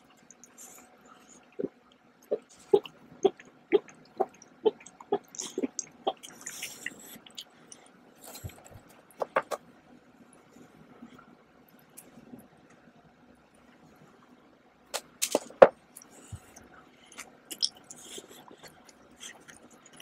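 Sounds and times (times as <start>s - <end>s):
person gulping a drink: 2.3s - 7.6s, 17.2s - 20.0s.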